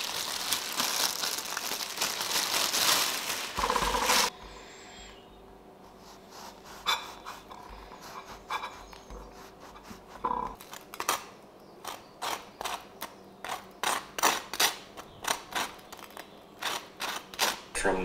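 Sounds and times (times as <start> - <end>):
knife scraping spread on bagel: 5.9 - 10.2.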